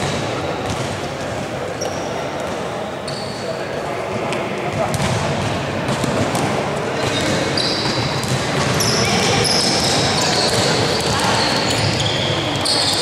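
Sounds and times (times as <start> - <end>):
hall full of voices: 0.0 - 13.0
sneakers squeaking on floor: 1.7 - 3.7, 6.0 - 13.0.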